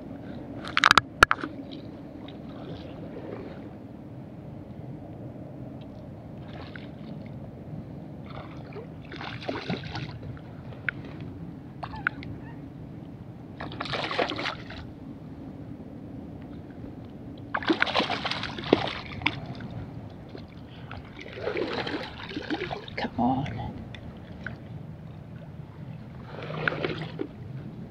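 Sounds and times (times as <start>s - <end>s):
low background rumble: 0.0s - 27.9s
fish splashing in water: 13.6s - 14.8s, 17.5s - 19.7s, 21.0s - 23.0s.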